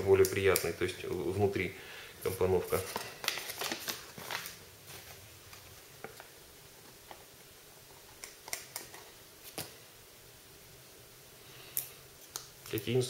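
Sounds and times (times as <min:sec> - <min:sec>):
paper and card rustling: 0:02.3 - 0:06.3.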